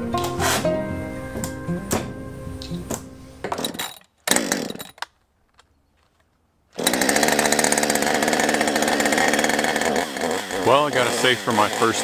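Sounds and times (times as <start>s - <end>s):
chainsaw running: 3.6s - 5.0s, 6.8s - 12.0s.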